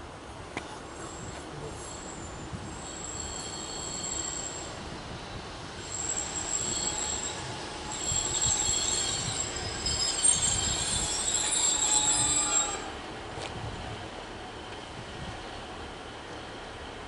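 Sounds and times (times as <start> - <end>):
train low rumble: 0.0 - 17.0
train brakes squealing: 1.0 - 13.0.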